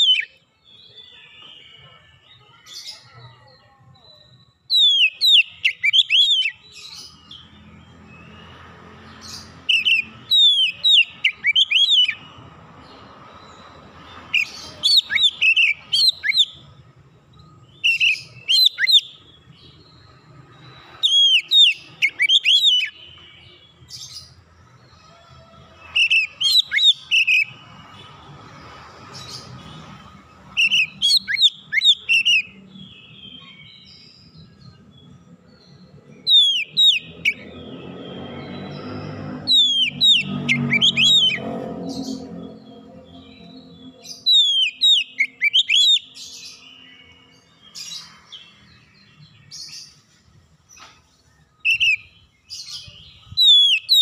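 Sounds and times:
bird singing whistled notes: 0.0s - 25.2s, 25.8s - 28.2s, 28.8s - 54.0s.

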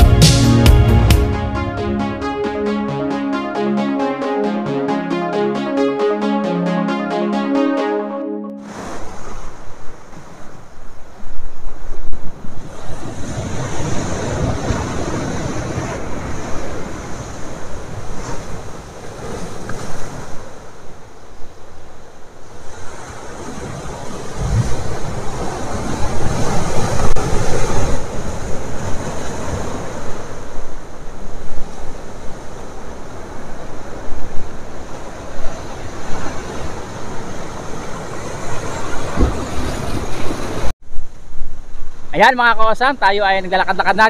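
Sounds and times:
waves breaking over boulders: 22.5s - 40.7s.

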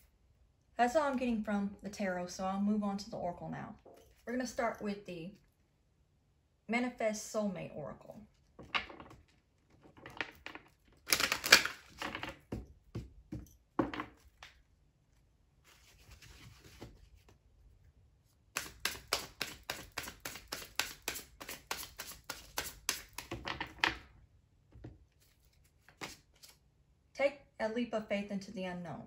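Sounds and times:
cards being shuffled by hand: 9.9s - 12.4s, 18.5s - 23.5s, 25.1s - 26.6s.

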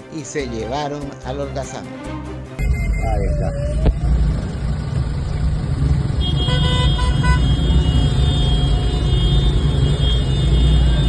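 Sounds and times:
traffic rumble: 2.6s - 11.0s
car horn toots: 6.1s - 11.0s.

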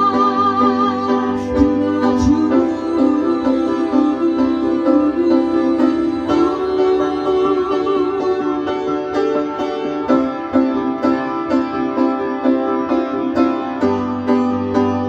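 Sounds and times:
piano chords: 0.0s - 15.0s.

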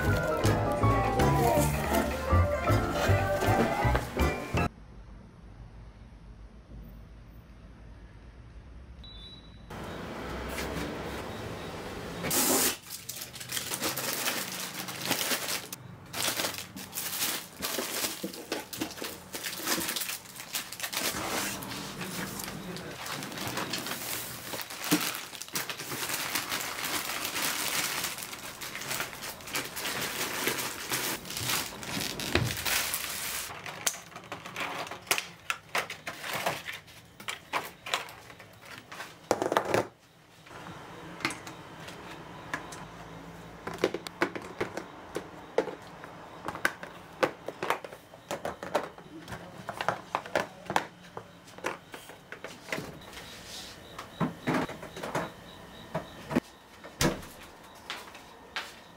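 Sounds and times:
plastic egg cartons crinkling: 0.0s - 3.6s, 12.6s - 39.8s.

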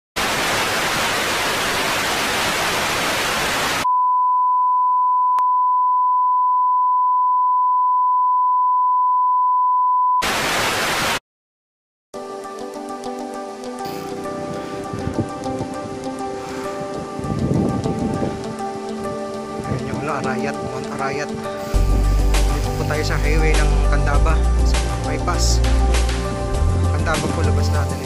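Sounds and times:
tv static hiss: 0.2s - 3.8s, 10.2s - 11.2s
steady test-tone beep: 3.9s - 10.2s
music: 12.2s - 28.0s.

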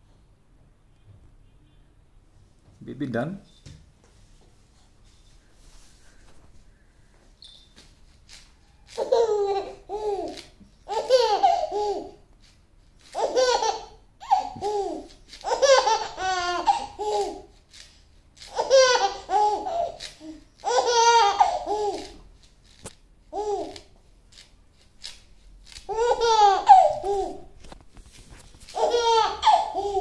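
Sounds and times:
baby laughing: 8.9s - 12.2s, 13.1s - 17.5s, 18.4s - 22.2s, 25.9s - 27.5s, 28.7s - 30.0s.

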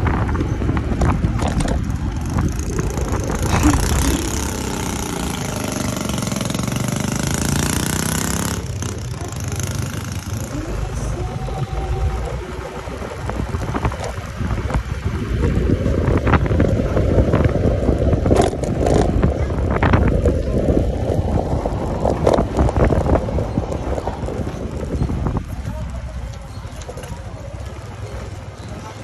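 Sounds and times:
rushing air: 0.0s - 9.0s
scooter engine: 0.0s - 29.0s.

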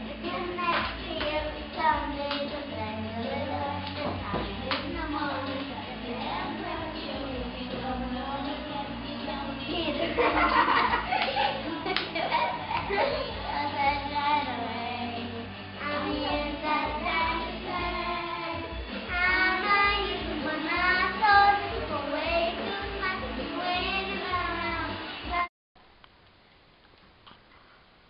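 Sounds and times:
girl singing into microphone: 0.0s - 25.5s
karaoke pop backing track: 0.0s - 25.5s.

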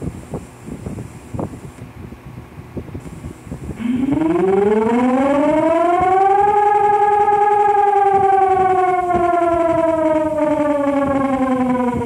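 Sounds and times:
two-tone warning siren wailing: 3.8s - 12.0s.

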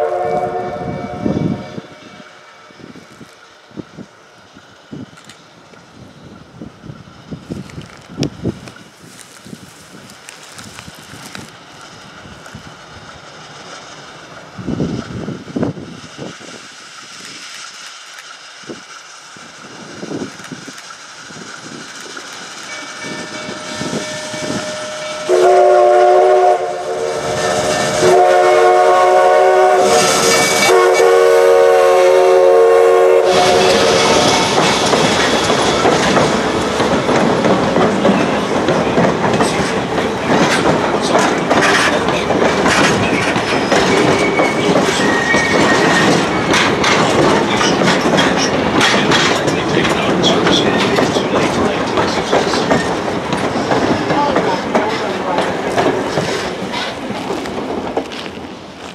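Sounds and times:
steam locomotive whistle blasts: 0.0s - 3.1s, 22.7s - 34.6s, 43.5s - 46.6s
steam locomotive passing: 0.0s - 58.9s
train wheels clattering over rail joints: 5.0s - 25.6s, 33.2s - 58.9s.

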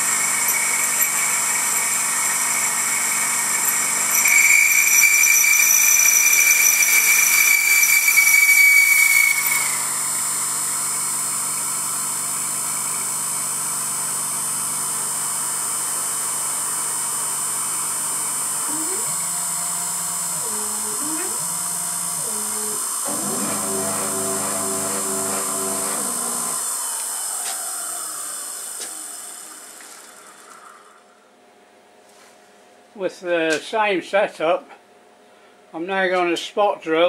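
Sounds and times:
spindle running: 18.7s - 26.8s
milling machine cutting whine: 18.7s - 29.8s
short rising machine whines: 18.7s - 31.2s.

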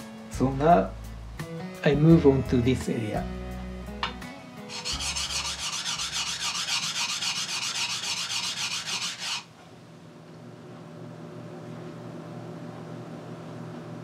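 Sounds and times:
knife grinding on whetstone: 4.7s - 9.5s.

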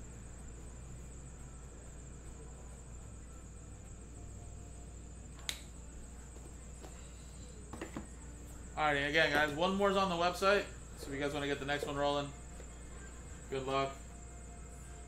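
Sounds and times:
sharp click: 5.4s - 5.7s.

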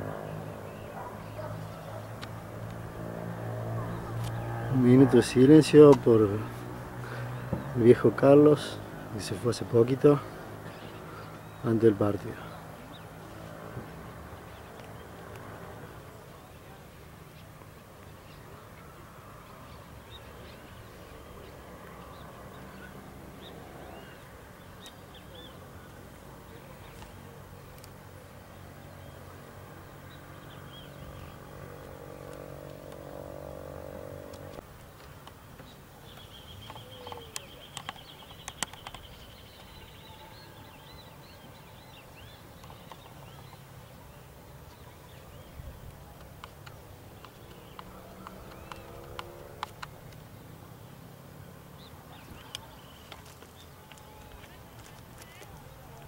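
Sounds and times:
faint birds chirping: 0.0s - 56.0s
sharp clicks: 36.1s - 39.8s.

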